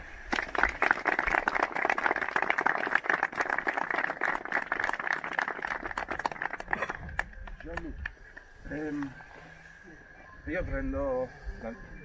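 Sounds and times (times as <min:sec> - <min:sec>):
people clapping: 0:00.2 - 0:09.1.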